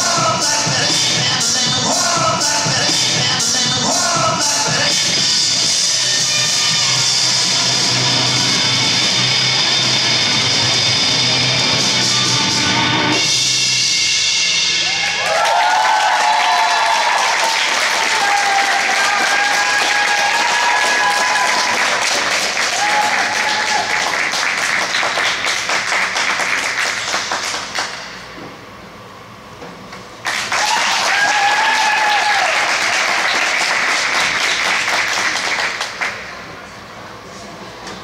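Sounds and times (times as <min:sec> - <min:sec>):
voices cheering: 0:14.8 - 0:24.2, 0:30.5 - 0:33.4
audience applauding: 0:15.0 - 0:28.2, 0:30.2 - 0:36.3.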